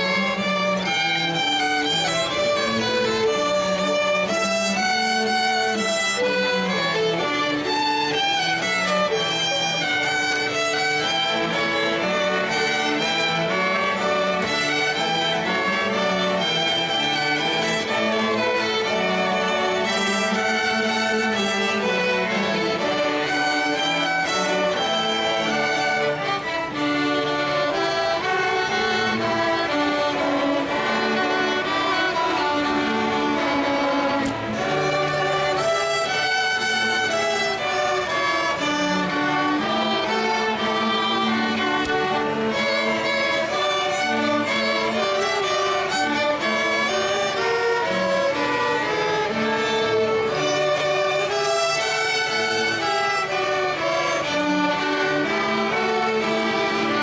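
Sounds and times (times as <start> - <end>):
orchestra playing with violins: 0.0 - 57.0.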